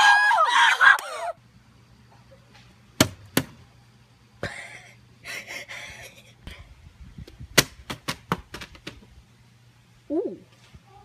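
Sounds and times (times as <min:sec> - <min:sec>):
high-pitched scream: 0:00.0 - 0:01.4.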